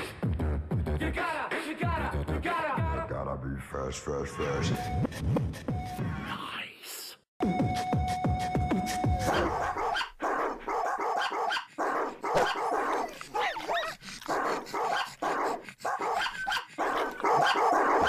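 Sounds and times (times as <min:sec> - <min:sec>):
dog barking: 0:09.2 - 0:18.0
dog yelping: 0:09.2 - 0:18.0.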